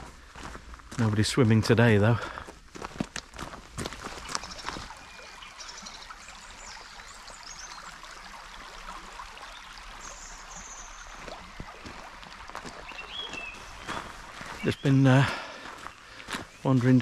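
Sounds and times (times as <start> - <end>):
stream flowing over pebbles: 1.5 - 17.0.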